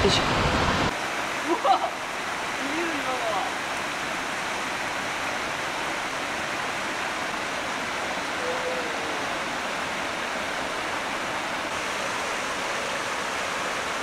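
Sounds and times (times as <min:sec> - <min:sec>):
stream rushing over rocks: 0:00.0 - 0:14.0.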